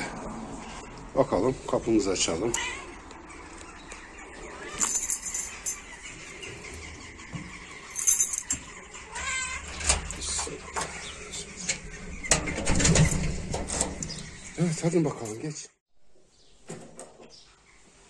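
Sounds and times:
cat meowing: 2.5s - 3.1s, 4.5s - 5.0s, 9.1s - 9.7s.

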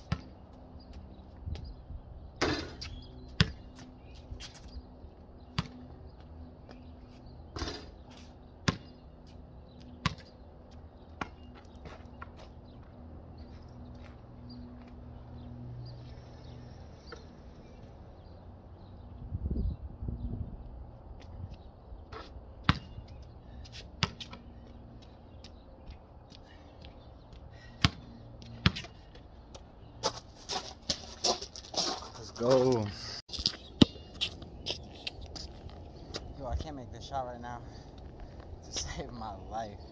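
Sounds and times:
basketball bouncing on concrete: 0.0s - 1.7s, 2.4s - 3.8s, 5.5s - 5.8s, 8.6s - 9.0s, 10.0s - 10.3s, 22.2s - 23.0s, 23.9s - 24.4s, 27.8s - 29.6s.

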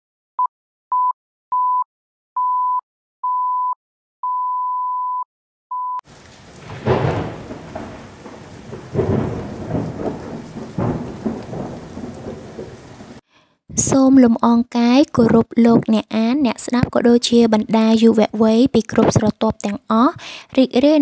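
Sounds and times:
steady rain: 6.1s - 13.2s
thunder rolling: 6.1s - 13.2s.

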